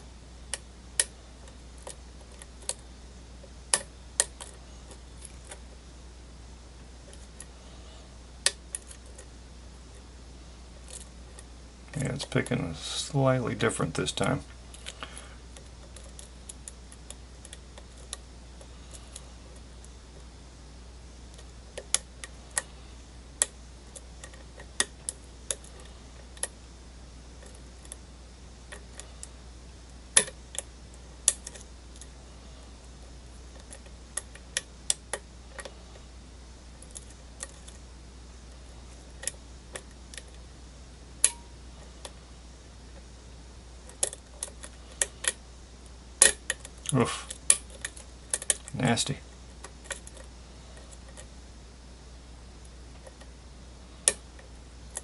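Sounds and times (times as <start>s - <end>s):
lock pick metallic clicks: 46.2s - 48.7s.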